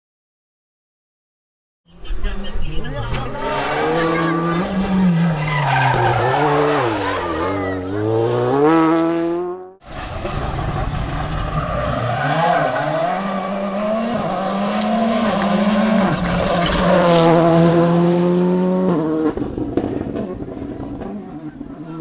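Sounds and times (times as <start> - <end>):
rally car engine at full throttle: 1.9 - 22.0
tyres squealing: 2.9 - 8.1.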